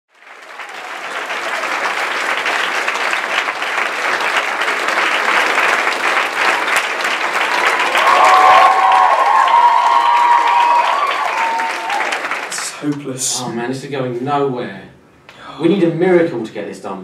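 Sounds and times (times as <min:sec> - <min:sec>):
audience applauding: 0:00.1 - 0:13.0.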